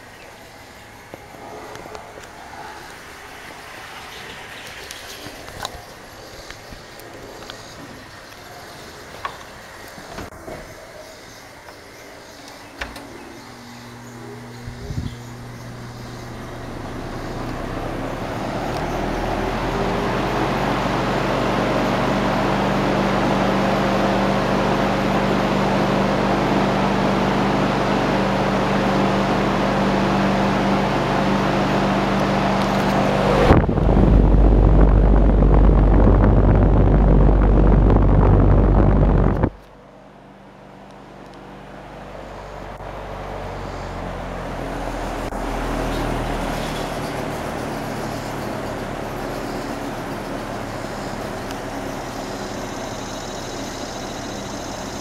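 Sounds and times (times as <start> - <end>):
box fan running: 0.0 - 55.0
loud low rumble: 13.4 - 22.7, 32.3 - 39.6.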